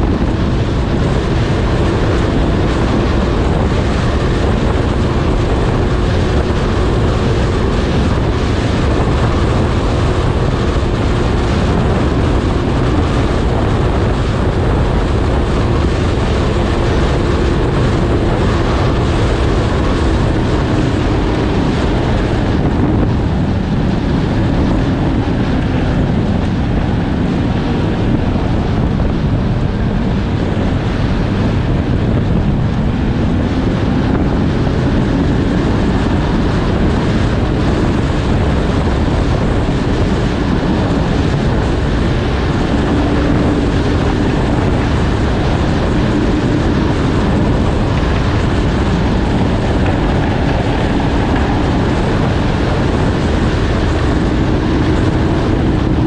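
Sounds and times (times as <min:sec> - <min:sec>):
snowmobile engine running: 0:00.0 - 0:56.0
wind rumbling on microphone: 0:00.0 - 0:56.0.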